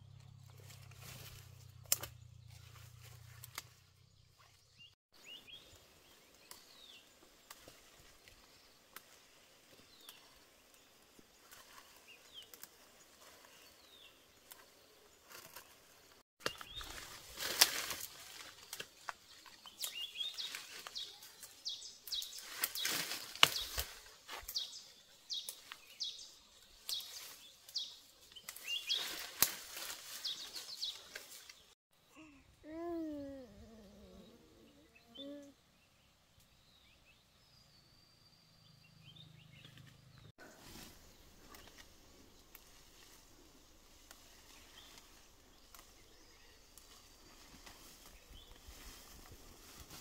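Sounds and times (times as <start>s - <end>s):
sharp cracks and snaps: 1.8s - 2.2s, 22.1s - 24.0s
birds chirping: 18.6s - 40.3s.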